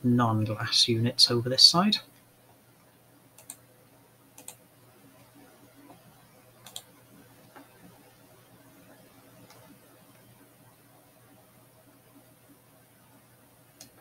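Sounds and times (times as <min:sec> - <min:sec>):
low background hiss: 0:00.0 - 0:14.0
computer mouse clicks: 0:03.4 - 0:03.6, 0:04.4 - 0:04.6, 0:06.6 - 0:06.9, 0:13.8 - 0:14.0.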